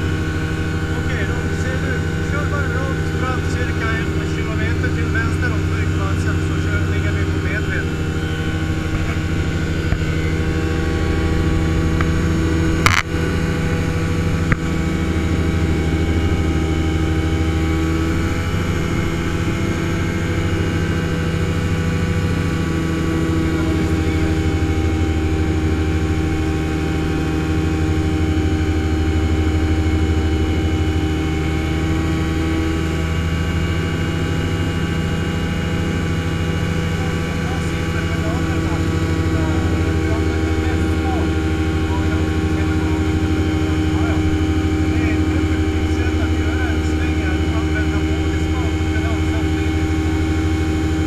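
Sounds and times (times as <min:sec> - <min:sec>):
aircraft engine and propeller droning: 0:00.0 - 0:51.0
sharp click: 0:12.8 - 0:13.1.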